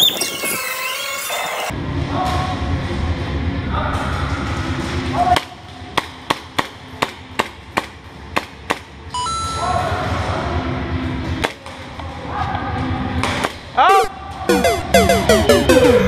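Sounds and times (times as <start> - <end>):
short electronic tones: 14.5 - 16.0.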